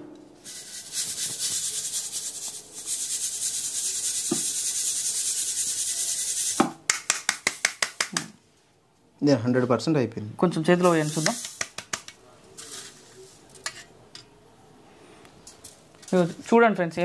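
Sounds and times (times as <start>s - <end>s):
grains rubbing in a metal sieve: 0.4s - 6.6s, 10.8s - 12.0s, 12.6s - 13.6s
powder sifting hiss: 0.4s - 8.1s, 10.7s - 13.5s.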